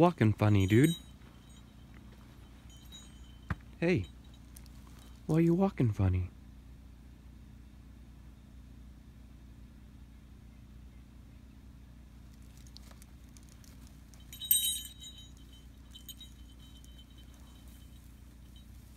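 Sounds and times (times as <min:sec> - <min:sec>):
dog tags jingling: 0:00.0 - 0:05.5, 0:12.4 - 0:18.9.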